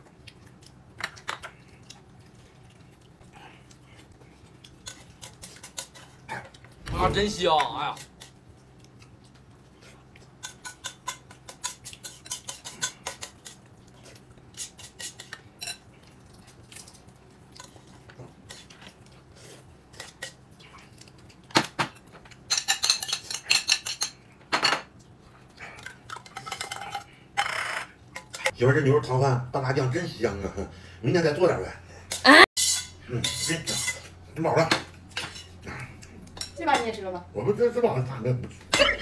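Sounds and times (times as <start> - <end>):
utensils clinking against a bowl: 10.3 - 13.7, 14.5 - 15.9, 21.8 - 25.0, 25.8 - 28.6, 32.1 - 37.0.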